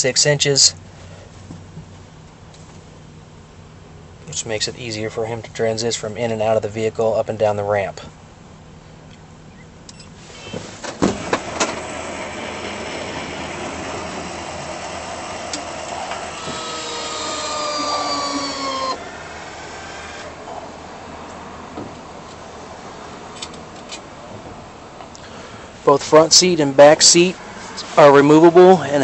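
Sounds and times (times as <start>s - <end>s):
electric ramp motor whining: 10.3s - 20.7s.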